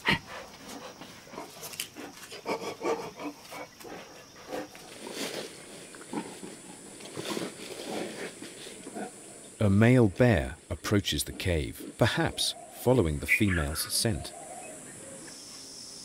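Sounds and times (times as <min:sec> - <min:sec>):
bear snuffling breaths: 0:00.0 - 0:09.4
bear calls: 0:11.1 - 0:15.3.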